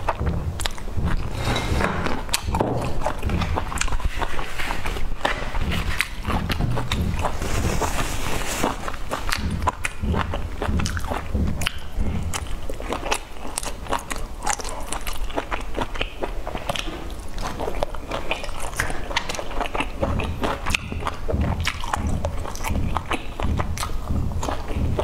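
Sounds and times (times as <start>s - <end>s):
person chewing: 0.0s - 25.0s
wet mouth clicks: 9.1s - 25.0s.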